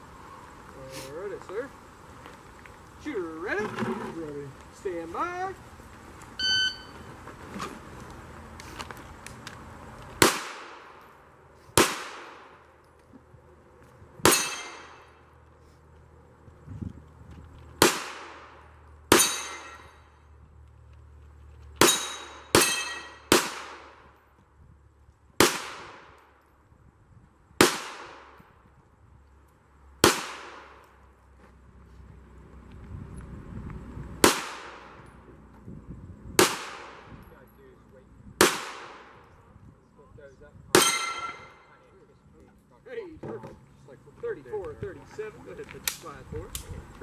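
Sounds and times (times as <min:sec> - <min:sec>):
pistol shots with echo: 0:10.2 - 0:11.0, 0:11.8 - 0:12.6, 0:14.2 - 0:15.1, 0:17.8 - 0:19.9, 0:21.8 - 0:24.0, 0:25.4 - 0:26.2, 0:27.6 - 0:28.4, 0:30.0 - 0:30.8, 0:34.2 - 0:35.0, 0:36.4 - 0:37.1, 0:38.4 - 0:39.2, 0:40.7 - 0:41.6.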